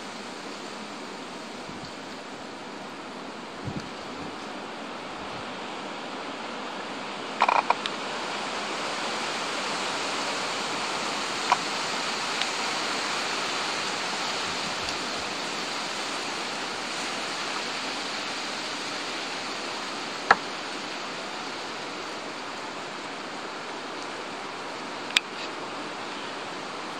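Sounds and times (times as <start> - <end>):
rushing background noise: 0.0 - 26.9.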